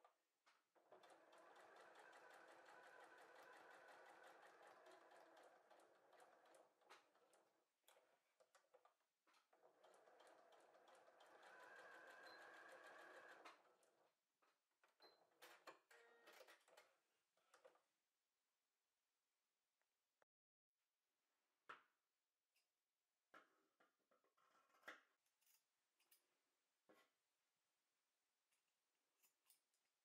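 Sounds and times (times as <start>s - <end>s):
sewing machine stitching: 0.8s - 8.5s, 9.5s - 14.1s.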